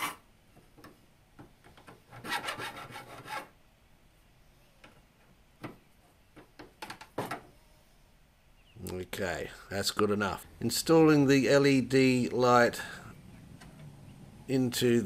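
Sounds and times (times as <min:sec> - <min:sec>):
hand file rasping on metal: 0:02.1 - 0:03.5.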